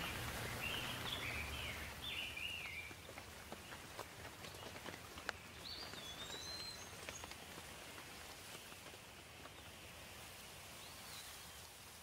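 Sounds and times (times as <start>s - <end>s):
bird chirps: 0.0s - 3.1s, 4.5s - 7.4s
raindrops ticking on leaves: 0.0s - 10.8s
light rain falling: 0.0s - 12.0s.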